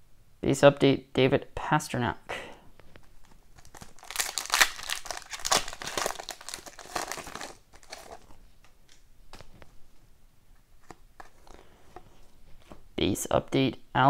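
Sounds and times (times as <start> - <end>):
foil wrapper crinkling: 3.0 - 9.5
cards clicking and rustling: 10.8 - 12.8.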